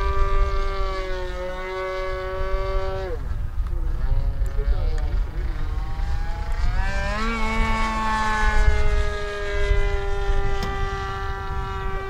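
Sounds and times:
model airplane motor whining: 0.0 - 12.0.

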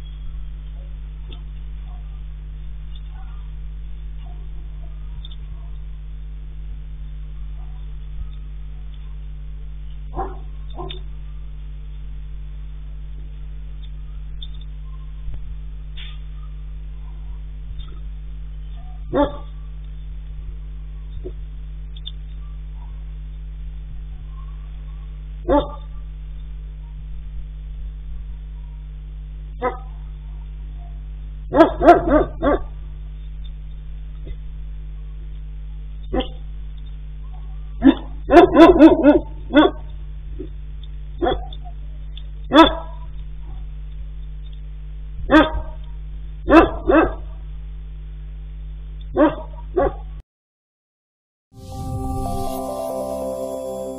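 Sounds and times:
camera low hum: 0.0 - 46.5
dog barking: 1.8 - 2.2, 3.1 - 3.5, 4.2 - 5.8, 10.1 - 11.1, 16.2 - 17.5, 18.8 - 19.6, 24.4 - 26.0, 29.6 - 32.8, 36.1 - 36.4, 37.8 - 39.9, 41.2 - 41.6, 42.5 - 43.7, 45.3 - 45.8, 46.5 - 47.4, 49.1 - 50.1.

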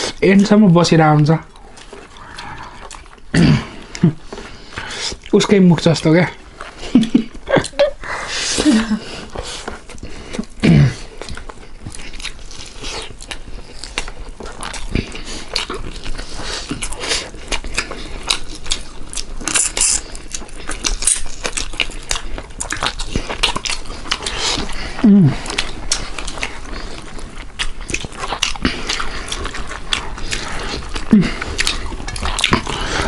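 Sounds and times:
wet chewing and lip-smacking: 0.0 - 33.0.

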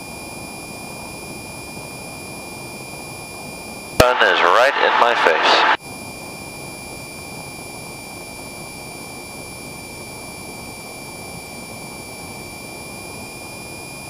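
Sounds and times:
airplane engine and propeller droning: 4.0 - 5.8.

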